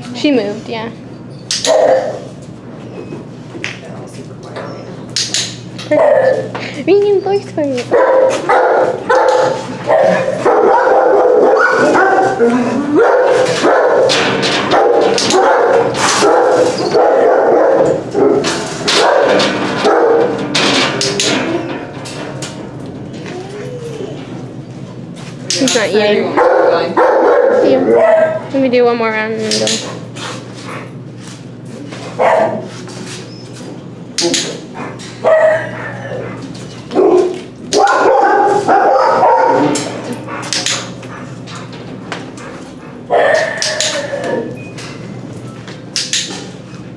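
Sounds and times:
dogs barking loudly: 0:01.5 - 0:02.4, 0:05.8 - 0:06.7, 0:07.3 - 0:21.5, 0:26.0 - 0:28.6, 0:32.0 - 0:32.8, 0:34.2 - 0:44.6.

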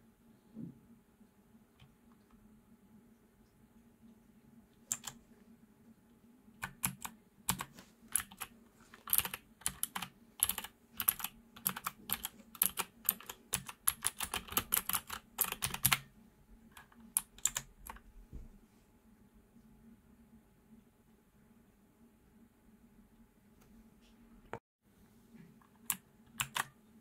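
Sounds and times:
clicky mechanical keyboard typing: 0:04.9 - 0:05.2, 0:06.6 - 0:16.1, 0:16.8 - 0:18.0, 0:25.6 - 0:26.8.

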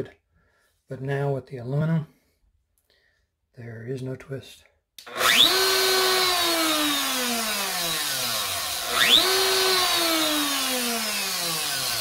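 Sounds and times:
router motor whining: 0:05.0 - 0:12.0.

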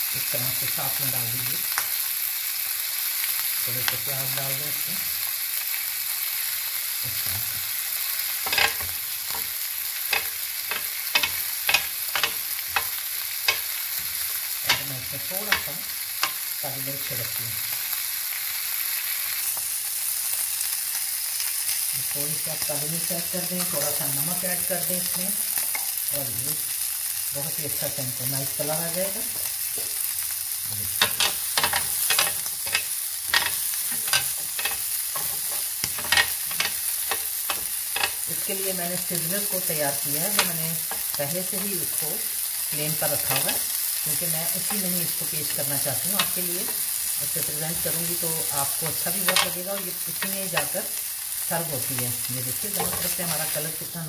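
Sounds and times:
food sizzling on grill pan: 0:00.0 - 0:54.0
tongs clicking against pan: 0:08.4 - 0:16.4, 0:31.0 - 0:39.6, 0:40.2 - 0:41.8, 0:42.4 - 0:45.2, 0:46.0 - 0:47.0, 0:48.8 - 0:50.8, 0:52.7 - 0:53.6.

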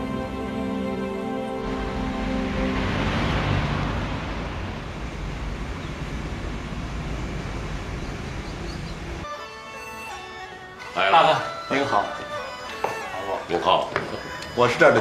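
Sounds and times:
low rumble of traffic: 0:01.2 - 0:09.3
vehicle passing close by: 0:01.5 - 0:09.2.

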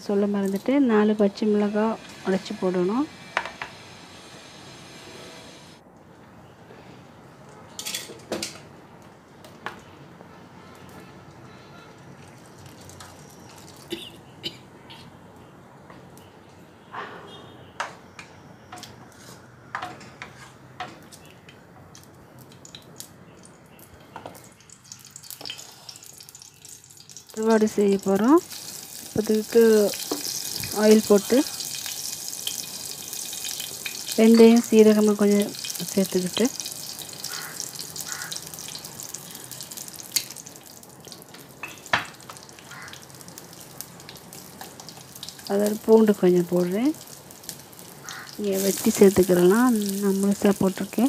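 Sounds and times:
hot oil sizzling: 0:00.0 - 0:05.8, 0:12.1 - 0:13.9, 0:21.9 - 0:51.0.

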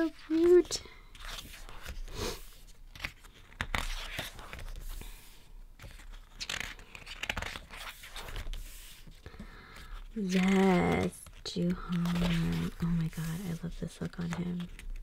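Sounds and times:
paper pages rustling: 0:00.0 - 0:15.0.

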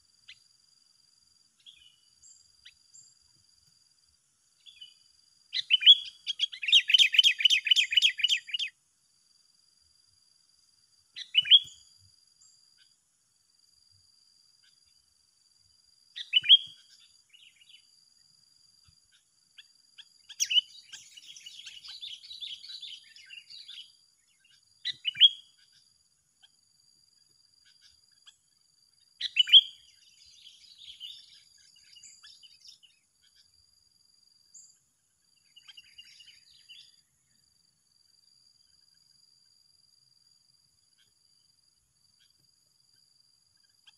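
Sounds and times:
insect trill: 0:00.0 - 0:43.9
bird sharp calls: 0:05.6 - 0:08.7, 0:11.2 - 0:11.8, 0:16.2 - 0:17.8, 0:20.0 - 0:25.8, 0:29.2 - 0:33.4.

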